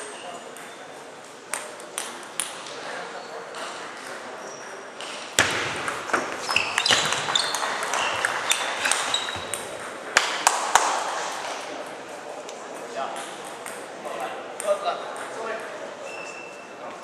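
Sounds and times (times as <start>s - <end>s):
loud table tennis hits: 4.9s - 12.0s, 12.7s - 15.6s.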